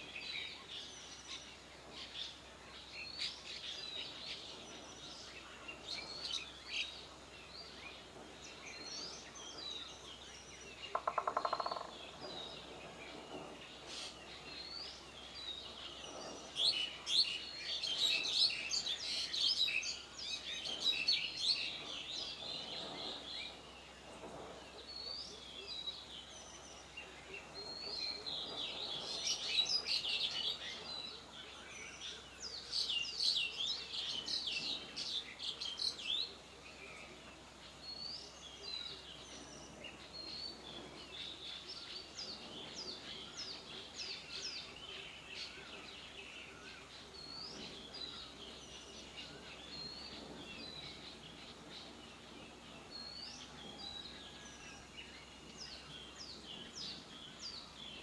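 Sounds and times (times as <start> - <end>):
birds chirping and singing: 0.0 - 58.0.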